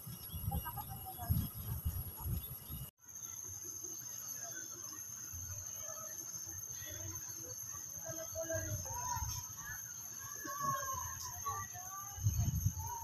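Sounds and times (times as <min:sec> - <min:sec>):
wind gusts on microphone: 0:00.0 - 0:02.9, 0:10.6 - 0:13.0
high-pitched insect drone: 0:00.1 - 0:13.0
faint distant voices: 0:00.4 - 0:13.0.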